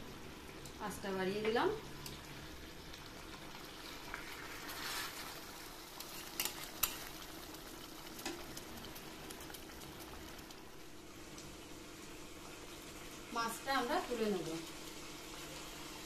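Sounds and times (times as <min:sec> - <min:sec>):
curry bubbling and sizzling: 0:00.0 - 0:16.0
spatula stirring in pot: 0:03.8 - 0:10.6.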